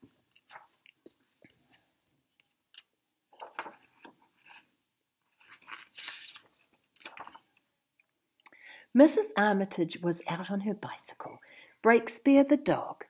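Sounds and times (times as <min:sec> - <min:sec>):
book pages rustling: 0:00.3 - 0:07.6.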